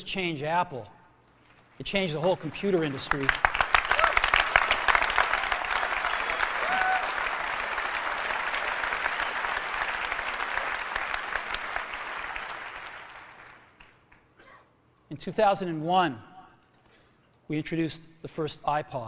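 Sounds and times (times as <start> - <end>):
large audience applauding: 1.6 - 14.3.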